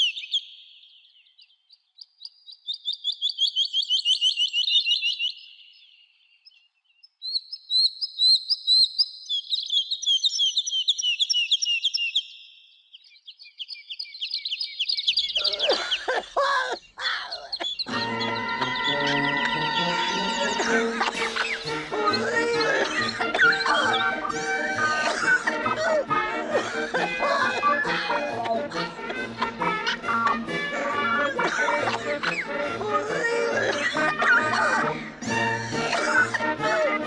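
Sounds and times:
songbird trilling: 0:00.0 - 0:16.1, 0:16.7 - 0:20.3.

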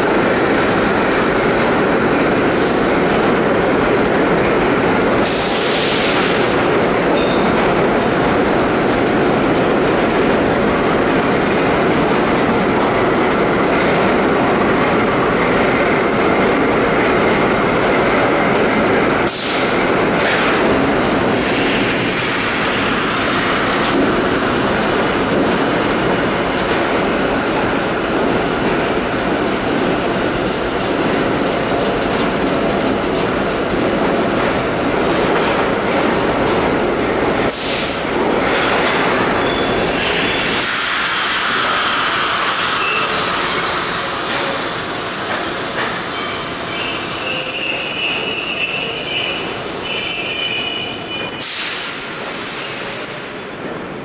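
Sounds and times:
train wheels rumbling and clattering: 0:00.0 - 0:54.0
high wheel squeals: 0:39.3 - 0:40.6, 0:42.1 - 0:44.6, 0:46.0 - 0:54.0.

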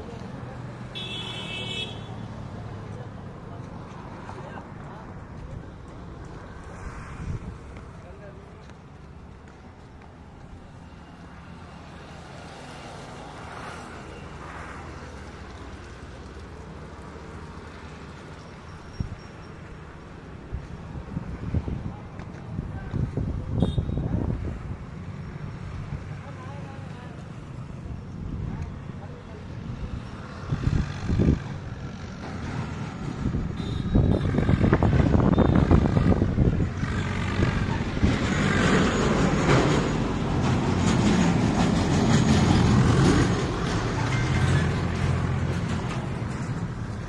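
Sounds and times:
road traffic rumble: 0:00.0 - 0:47.0
vehicle passing by: 0:28.4 - 0:33.5, 0:34.2 - 0:47.0.

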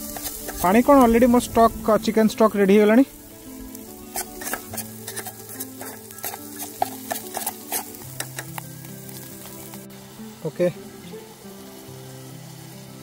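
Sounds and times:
knife scraping a pot: 0:00.0 - 0:00.7, 0:04.1 - 0:08.5
food sizzling in oil: 0:00.0 - 0:13.0
quiet background music: 0:00.0 - 0:13.0.

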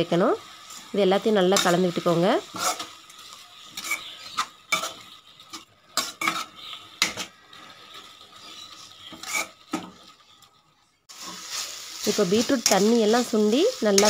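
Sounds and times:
spatula scraping and knocking pan: 0:01.4 - 0:10.4.

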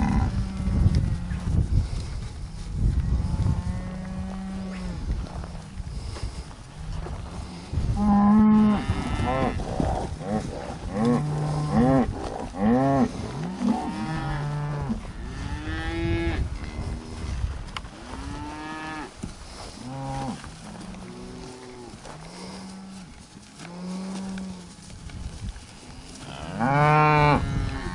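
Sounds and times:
cattle mooing: 0:08.0 - 0:16.8, 0:26.2 - 0:27.9.

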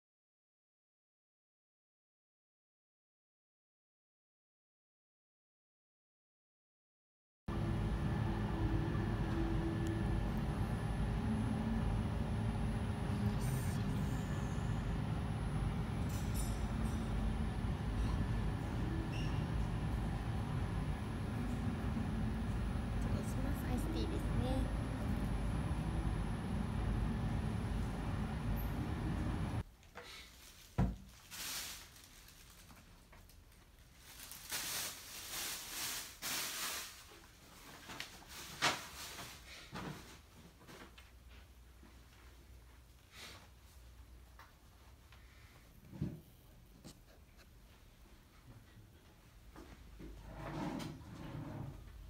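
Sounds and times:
low rumbling background: 0:07.5 - 0:29.6
restaurant room noise: 0:08.0 - 0:29.6
rustling and shuffling: 0:30.1 - 0:50.2.

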